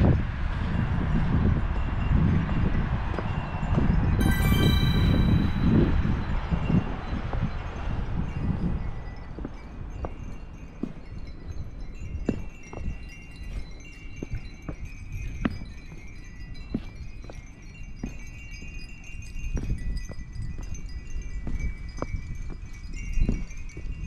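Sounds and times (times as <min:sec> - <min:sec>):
wind chimes ringing: 0:04.1 - 0:24.0.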